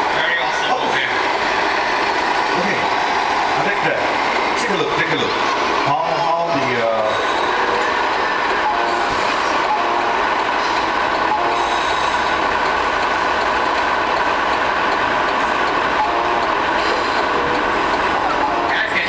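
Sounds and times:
simulated diesel engine hum: 0:00.0 - 0:19.0
air horn toots: 0:08.7 - 0:10.3, 0:11.3 - 0:12.2, 0:18.4 - 0:19.0.

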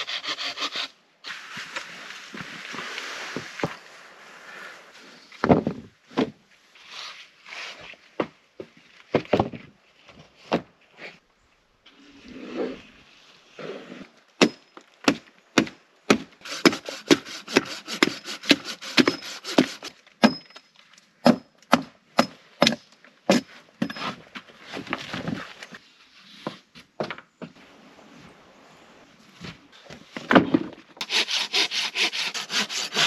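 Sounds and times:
rubbing and scraping on wood: 0:16.4 - 0:20.0, 0:29.4 - 0:33.0
wood being chopped: 0:21.2 - 0:23.5.

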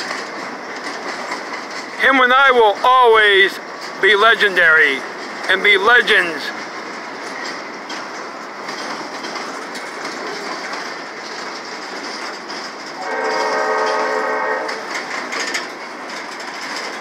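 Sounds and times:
train wheels rolling on rails: 0:00.0 - 0:17.0
train horn: 0:13.0 - 0:15.0.

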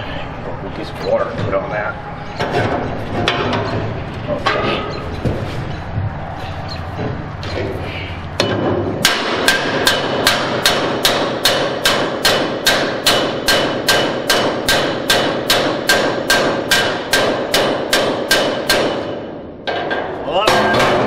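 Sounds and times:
hammer striking steel: 0:08.4 - 0:21.0.

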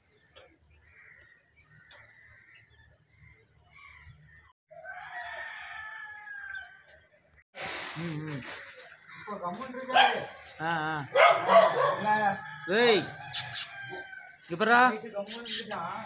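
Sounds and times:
voices: 0:08.0 - 0:16.0.

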